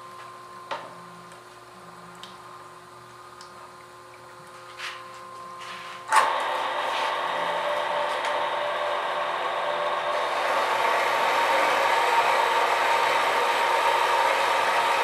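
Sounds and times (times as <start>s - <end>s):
band saw motor and blade hum: 6.1s - 15.0s.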